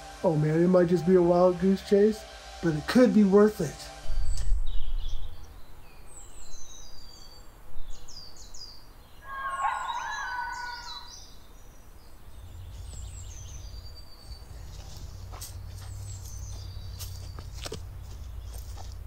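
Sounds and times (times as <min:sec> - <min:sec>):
birds chirping: 0:03.6 - 0:19.0
low bird call: 0:09.1 - 0:11.5.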